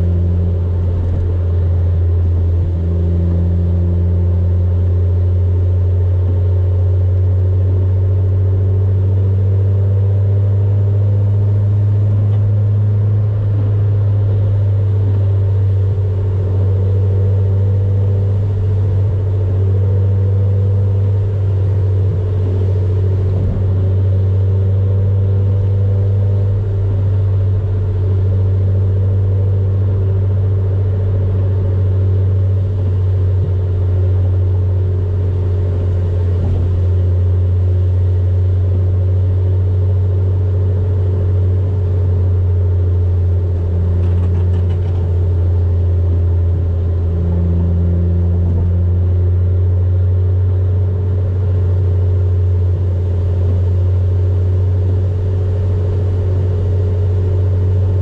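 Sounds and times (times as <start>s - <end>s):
car engine and road drone: 0.0s - 58.0s
thump inside car: 36.3s - 37.0s.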